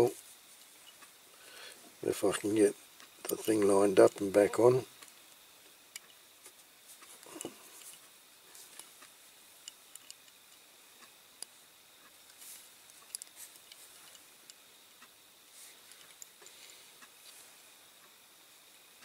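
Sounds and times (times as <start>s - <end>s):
soft rustles: 12.1s - 14.3s, 15.5s - 17.8s.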